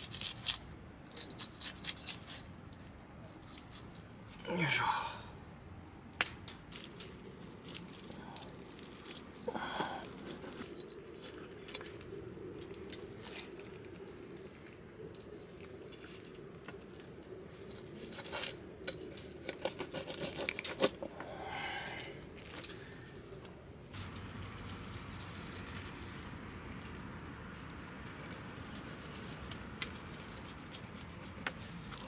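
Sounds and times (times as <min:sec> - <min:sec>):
rustling and crinkling: 0:06.1 - 0:21.2, 0:22.3 - 0:32.0.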